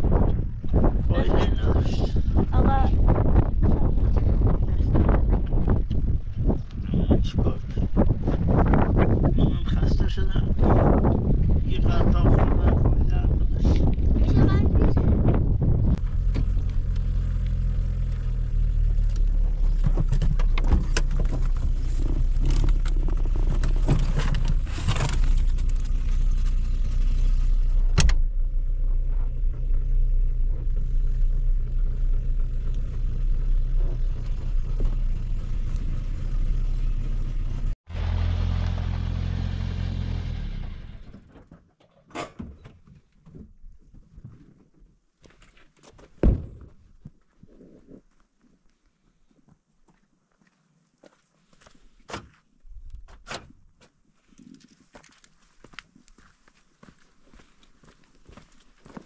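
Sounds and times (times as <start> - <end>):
car engine and road noise: 0.0 - 41.6
knocks and rattles from bumps: 19.3 - 26.2.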